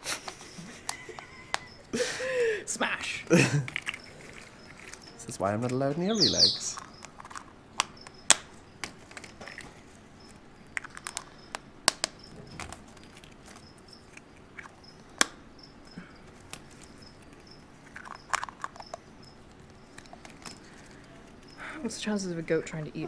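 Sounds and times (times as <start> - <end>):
paper rustling: 3.0 - 6.1
plastic eggs clicking shut: 3.5 - 5.9, 6.7 - 9.8, 10.7 - 15.4, 16.5 - 19.0.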